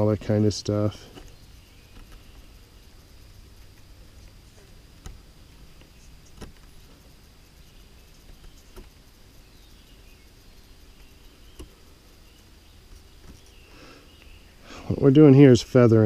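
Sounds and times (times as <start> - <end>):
faint woodland background: 0.0 - 16.0.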